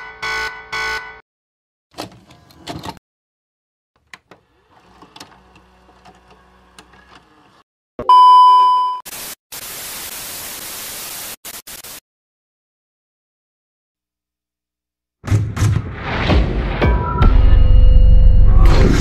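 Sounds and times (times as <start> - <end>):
test-pattern beep: 8.0 - 9.0
tv static hiss: 9.1 - 12.0.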